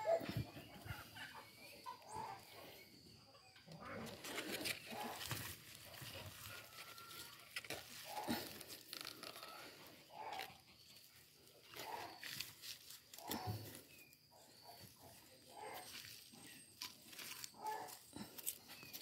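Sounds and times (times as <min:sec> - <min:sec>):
hand scraping through soil: 0:04.0 - 0:19.0.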